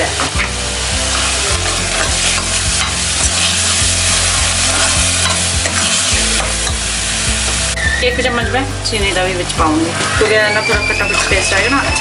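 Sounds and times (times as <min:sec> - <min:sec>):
vegetables sizzling in oil: 0:00.0 - 0:12.0
steel ladle scraping pan: 0:01.1 - 0:06.8, 0:09.8 - 0:11.9.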